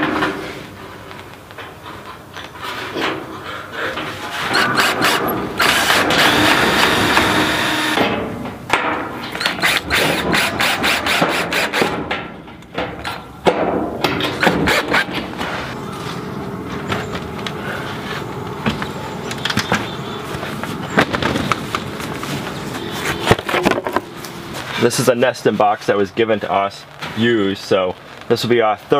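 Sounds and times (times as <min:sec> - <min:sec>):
cordless drill motor: 0:04.5 - 0:08.0, 0:09.6 - 0:11.8.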